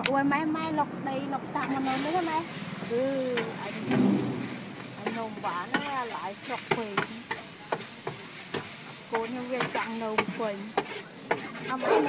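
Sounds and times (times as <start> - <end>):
food sizzling: 1.7 - 11.8
metal spatula scraping a wok: 1.8 - 12.0.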